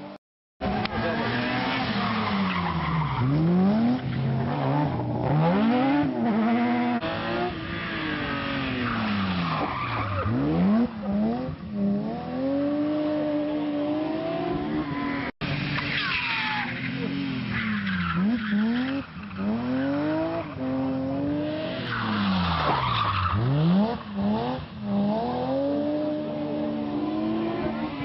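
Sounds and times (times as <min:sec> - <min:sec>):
rally car engines revving: 0:00.0 - 0:28.0
tyres sliding on tarmac: 0:15.4 - 0:19.5, 0:21.7 - 0:24.2.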